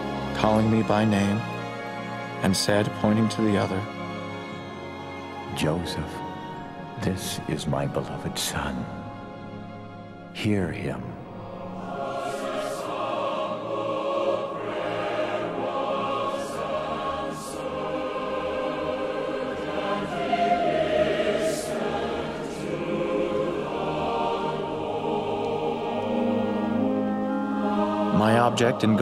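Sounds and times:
choir singing slow chords: 0:00.0 - 0:29.0.

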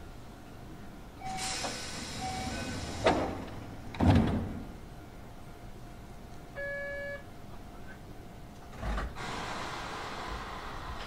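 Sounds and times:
short beeps: 0:01.2 - 0:01.6, 0:02.2 - 0:02.8, 0:06.6 - 0:07.2
train door hiss: 0:01.2 - 0:04.7, 0:08.8 - 0:11.0
doors shutting with thud: 0:01.4 - 0:04.8.

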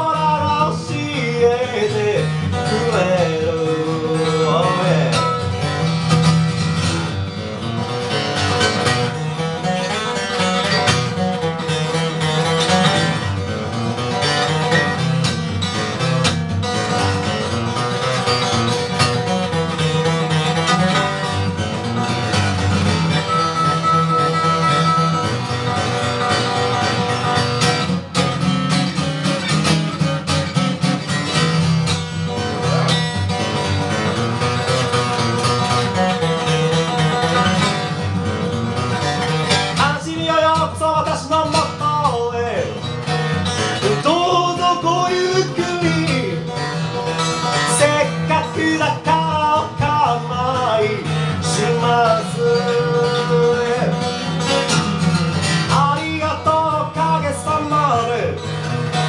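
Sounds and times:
man singing: 0:00.0 - 0:06.0, 0:39.4 - 0:59.0
acoustic guitar strummed: 0:00.0 - 0:59.0.

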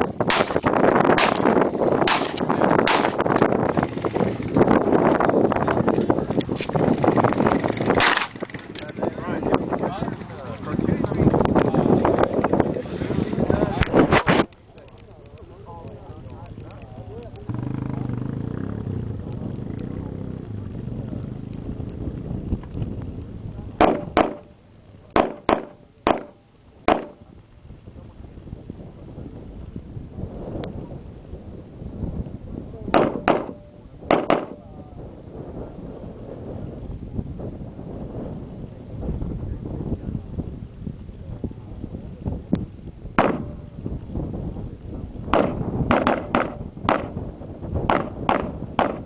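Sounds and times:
wind rumble on microphone: 0:00.0 - 0:49.0
gunshots: 0:00.3 - 0:03.3, 0:08.0 - 0:08.5, 0:23.8 - 0:24.5, 0:25.2 - 0:27.2, 0:32.9 - 0:34.6, 0:43.2 - 0:43.7, 0:45.3 - 0:47.2, 0:47.9 - 0:49.0.

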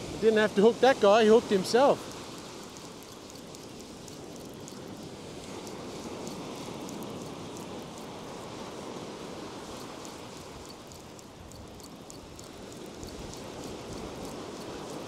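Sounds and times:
ocean surf breaking: 0:00.0 - 0:03.1.

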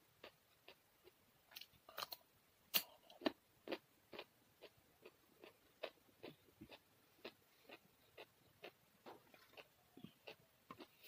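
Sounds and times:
chewing: 0:02.8 - 0:11.0.

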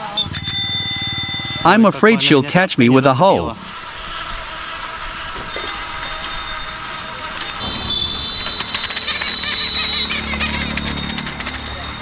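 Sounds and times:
bicycle bell ringing: 0:00.0 - 0:01.8, 0:05.5 - 0:12.0
street traffic: 0:00.0 - 0:12.0.

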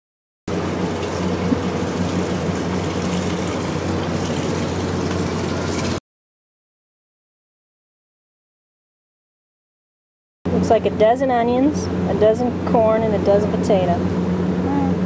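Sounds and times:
hose water pouring into pot: 0:00.5 - 0:06.0
low hum: 0:00.5 - 0:06.0.

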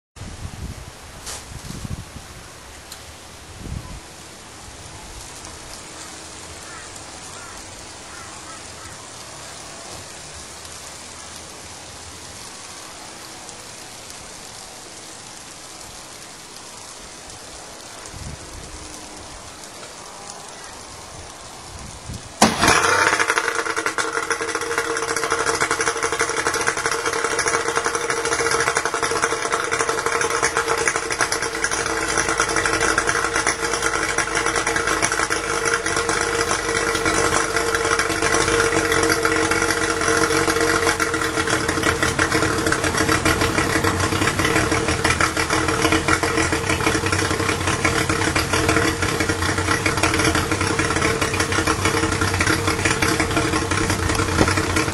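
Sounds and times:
outboard motor idling: 0:22.4 - 0:54.9.

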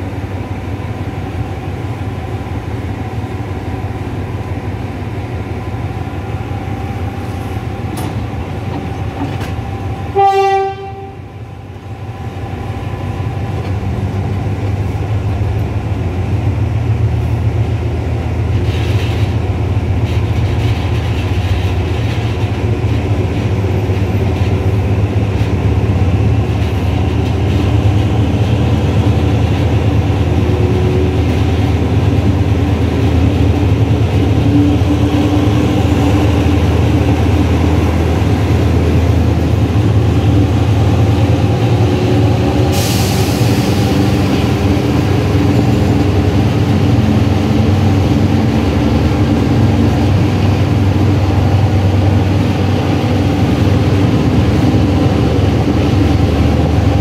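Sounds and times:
wheel and rail noise: 0:00.0 - 0:57.0
locomotive horn blast: 0:10.1 - 0:11.4.

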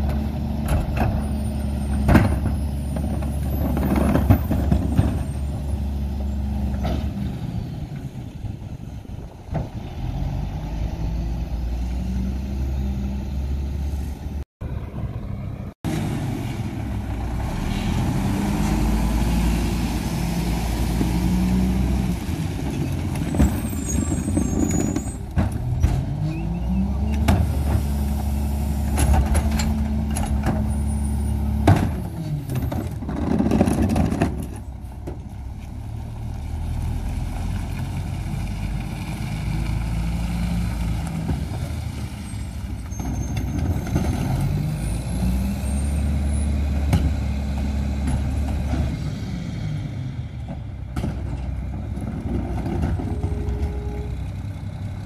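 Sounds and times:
garbage truck diesel engine revving: 0:09.8 - 0:24.6.

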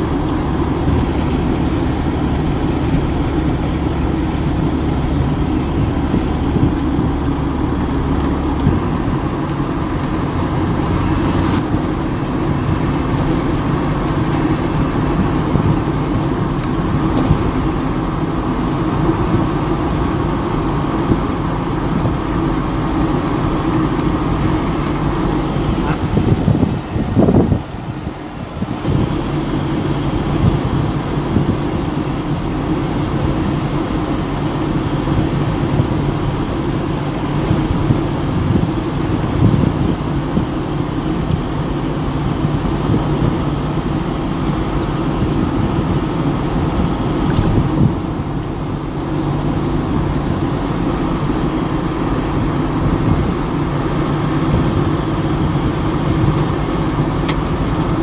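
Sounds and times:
tyre noise on road: 0:00.0 - 0:58.0
vehicle engine hum: 0:00.0 - 0:58.0.

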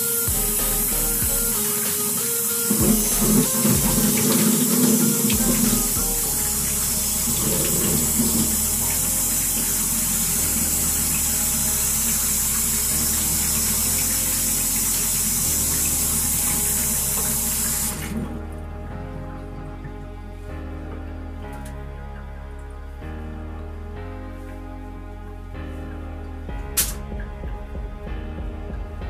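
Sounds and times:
faucet water pouring into sink: 0:00.0 - 0:18.4.

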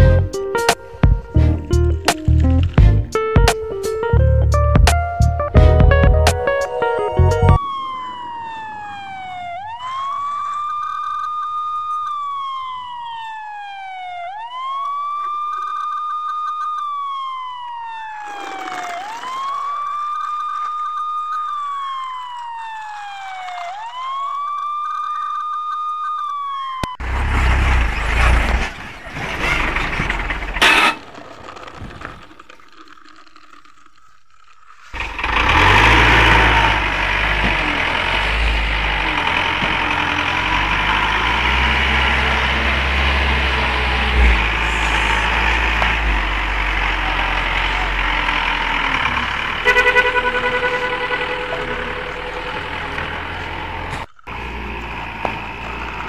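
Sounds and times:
police siren wailing: 0:05.5 - 0:27.0, 0:35.0 - 0:56.0.

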